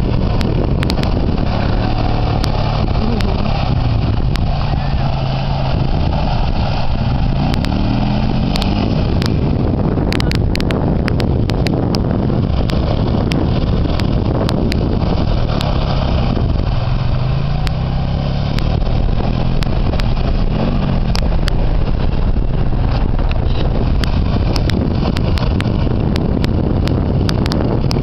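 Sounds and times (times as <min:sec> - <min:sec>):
atv engine running: 0:00.0 - 0:28.0
sharp clicks: 0:07.4 - 0:16.0.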